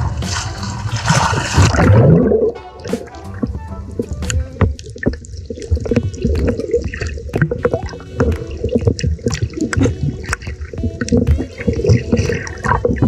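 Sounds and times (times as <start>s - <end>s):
muffled underwater sloshing: 0.0s - 13.0s
sharp underwater clicks: 2.9s - 13.0s.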